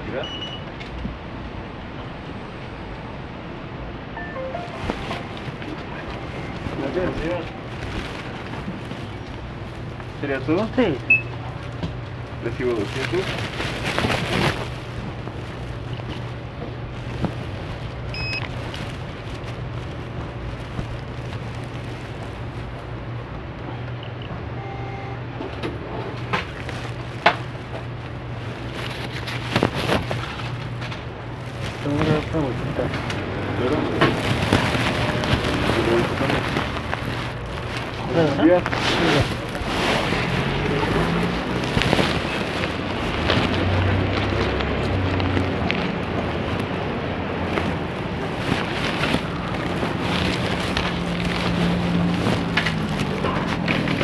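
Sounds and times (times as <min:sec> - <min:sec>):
short beep: 0:00.2 - 0:00.7, 0:18.1 - 0:18.4, 0:24.6 - 0:25.2
rustling handling noise on microphone: 0:04.2 - 0:23.6, 0:26.0 - 0:54.0.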